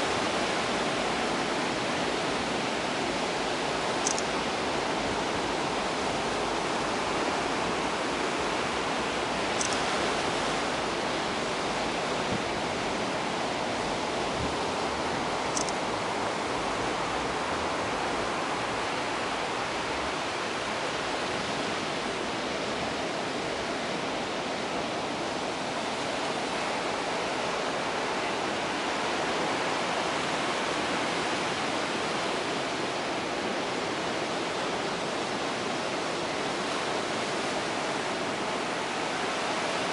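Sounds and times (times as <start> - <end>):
ocean surf washing ashore: 0.0 - 39.9
high-pitched ticks: 4.0 - 4.3.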